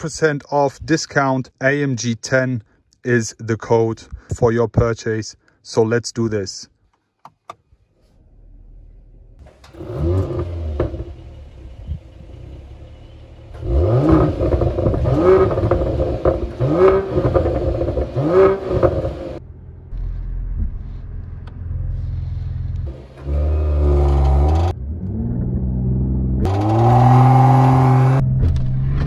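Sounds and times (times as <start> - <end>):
car engine revving and idling: 8.0 - 29.0.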